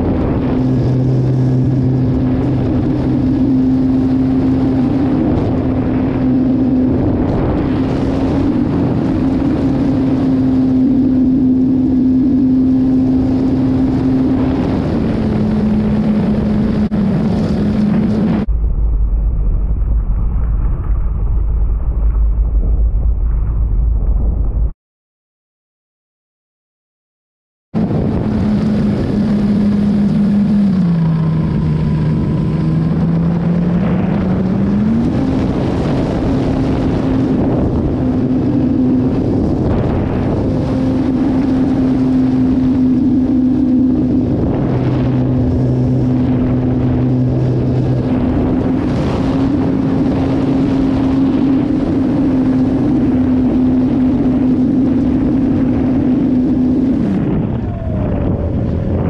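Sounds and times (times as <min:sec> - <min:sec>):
wind rushing over microphone: 0:00.0 - 0:24.7, 0:27.7 - 0:59.0
model airplane engine droning: 0:27.8 - 0:59.0.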